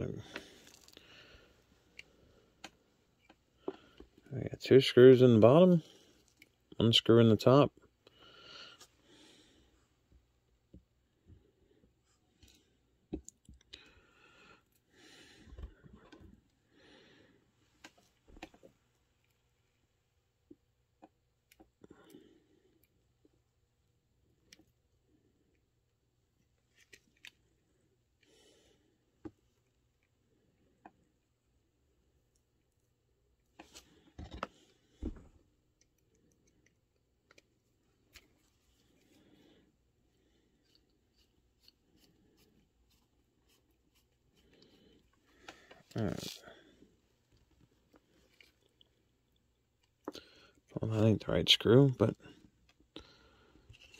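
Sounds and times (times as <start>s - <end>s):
soft breaths near microphone: 0.0s - 20.1s, 36.1s - 53.9s.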